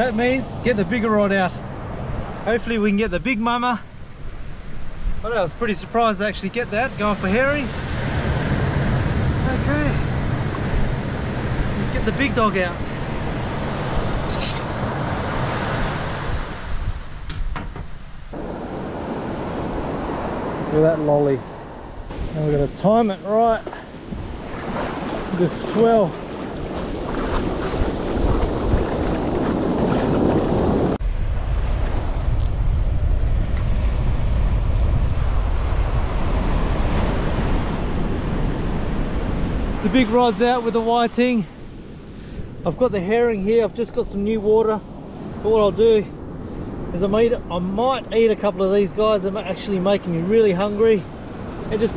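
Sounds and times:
surf: 0.0s - 17.2s, 18.3s - 51.9s
wind on microphone: 7.0s - 42.7s
rustle: 14.2s - 20.3s
fishing gear clicks: 14.3s - 14.7s
surf breaking on beach: 18.3s - 41.7s.

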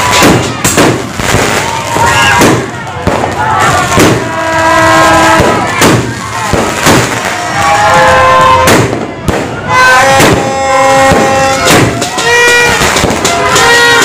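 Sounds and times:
firework shells bursting: 8.6s - 14.0s.

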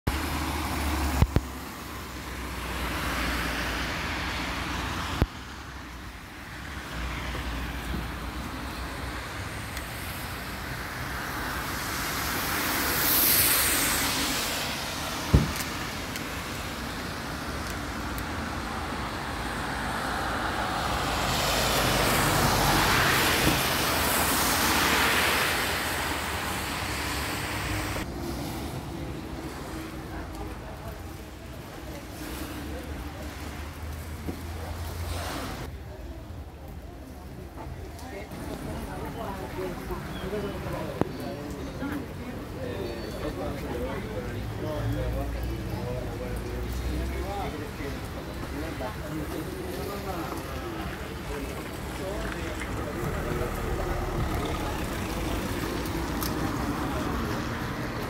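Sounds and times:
tyres hissing on wet road: 0.1s - 58.0s.

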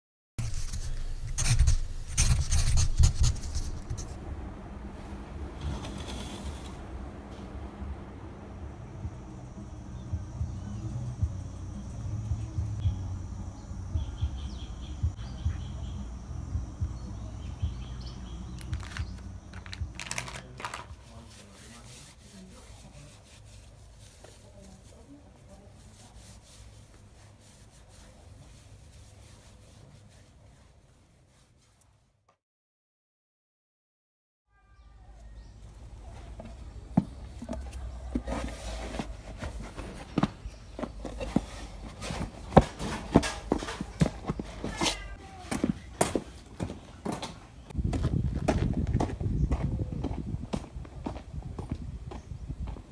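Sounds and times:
rubber boots rubbing: 0.4s - 4.3s, 36.0s - 47.4s
steady low rumble: 6.7s - 20.0s
birds chirping faintly: 8.8s - 20.0s
boots knocking on concrete: 36.3s - 52.9s.

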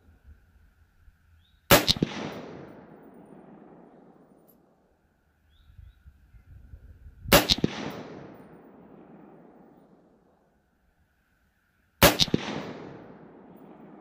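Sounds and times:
gunshot echo: 1.7s - 4.4s, 7.3s - 9.8s, 12.0s - 14.0s
rifle shot crack: 1.7s - 4.4s, 7.3s - 10.0s, 12.0s - 14.0s.

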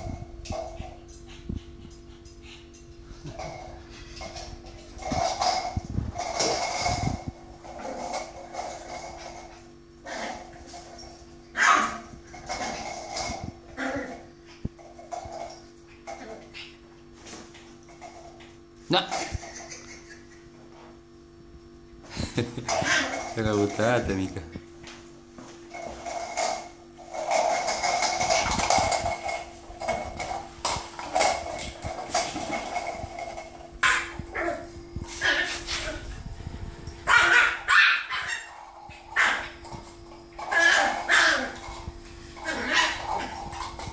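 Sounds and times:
puppy scuffling on tiled floor: 0.0s - 43.9s
puppy barking: 11.6s - 12.0s, 37.1s - 38.6s, 40.5s - 41.6s.

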